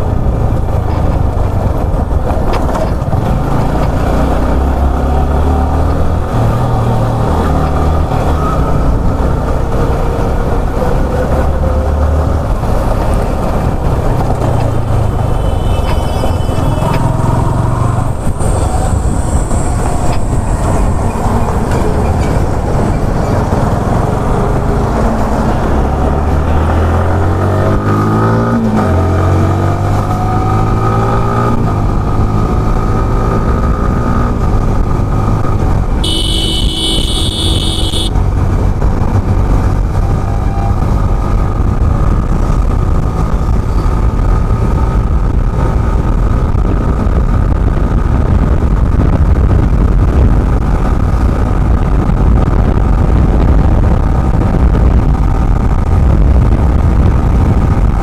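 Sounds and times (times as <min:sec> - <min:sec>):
vehicle horn: 0:15.3 - 0:17.1, 0:36.0 - 0:38.2
motorcycle engine accelerating: 0:16.2 - 0:58.0.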